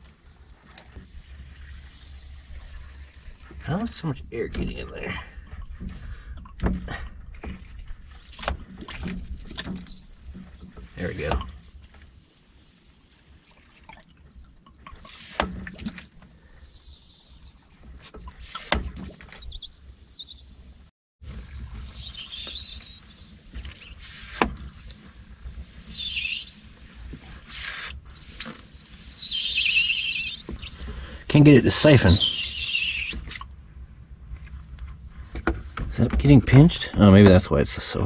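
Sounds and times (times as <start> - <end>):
siphon pump squeaking: 0.8 - 4.2, 7.4 - 20.4, 21.3 - 33.5.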